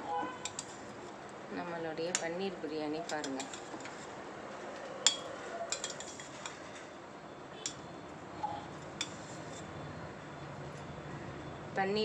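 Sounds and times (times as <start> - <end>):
ladle clinking against metal pot: 5.1 - 6.6.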